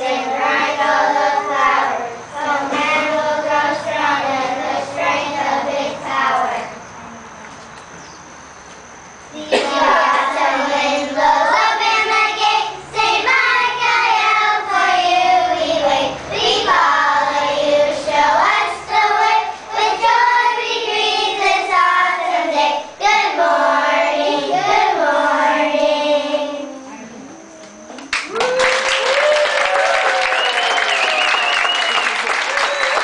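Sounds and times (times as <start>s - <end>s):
children singing: 0.0s - 6.8s, 9.4s - 27.4s.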